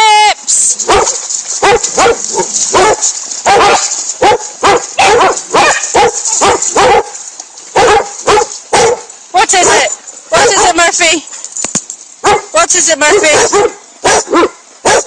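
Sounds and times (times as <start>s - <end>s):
dog barking: 0.9s - 10.8s, 12.2s - 15.0s.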